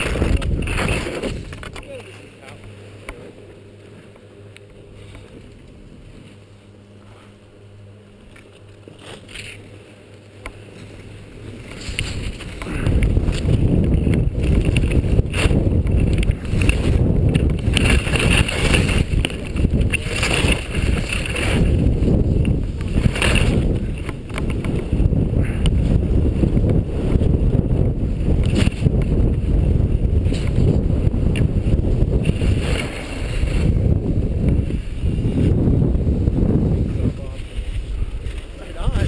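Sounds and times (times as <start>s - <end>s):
wind buffeting microphone: 0.0s - 1.9s, 11.2s - 39.0s
skis scraping on packed snow: 10.6s - 24.9s, 28.5s - 35.6s.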